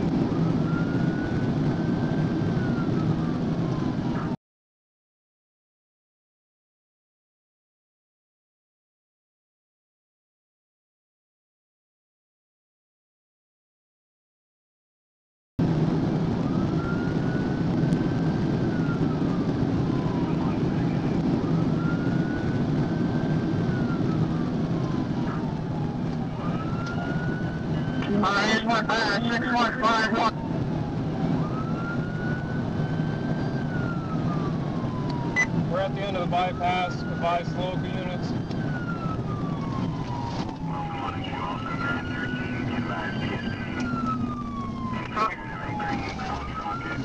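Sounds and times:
engine and road rumble: 0.0s - 4.4s, 15.6s - 47.0s
police siren wailing: 0.0s - 4.4s, 15.6s - 47.0s.

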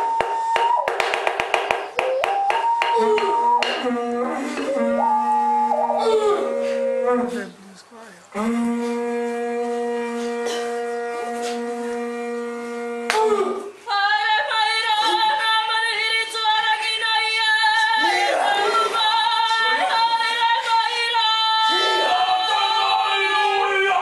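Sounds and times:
woman's high wavering call: 2.0s - 7.4s.

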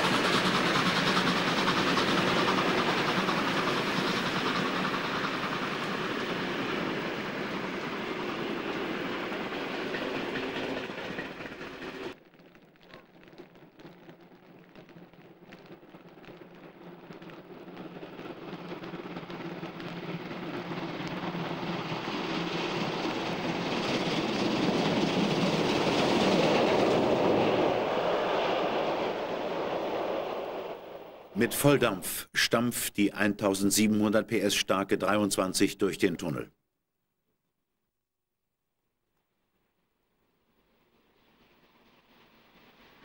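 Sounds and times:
steam locomotive exhaust pounding: 0.0s - 12.2s, 13.2s - 31.8s
train sound: 0.0s - 36.4s, 40.3s - 43.0s.

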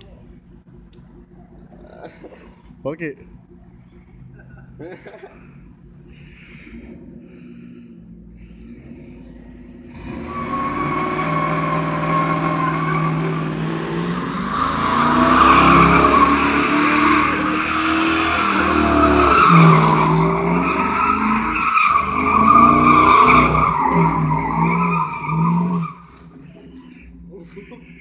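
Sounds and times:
car engine revving: 3.2s - 28.0s.

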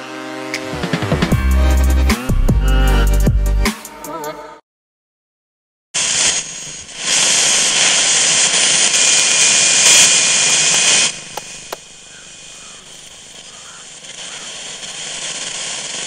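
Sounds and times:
radio static: 6.0s - 16.0s.

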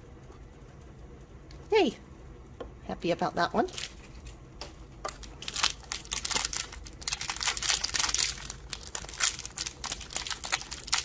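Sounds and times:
toy wrapper crinkling: 5.1s - 11.0s.

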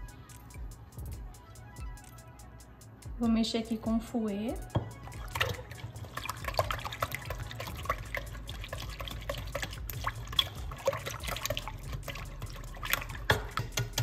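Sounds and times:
whisk squelching thick yogurt: 5.1s - 14.0s.

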